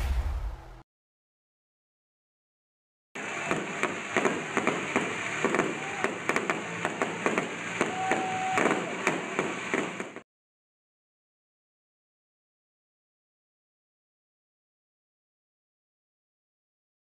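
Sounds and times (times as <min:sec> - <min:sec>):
fireworks popping and crackling: 0:03.2 - 0:10.2.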